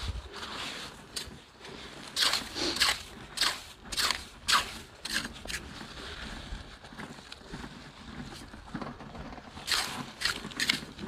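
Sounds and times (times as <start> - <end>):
sand rustling: 0.0 - 6.9
hand hoe scraping wet sand: 0.0 - 11.0.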